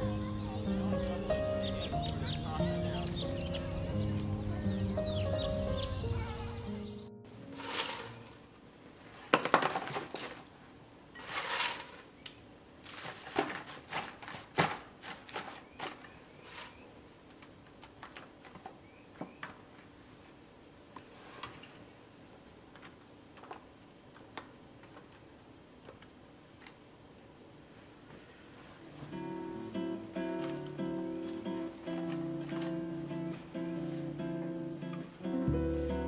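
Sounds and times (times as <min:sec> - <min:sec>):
paper box rustling: 0:07.5 - 0:08.3.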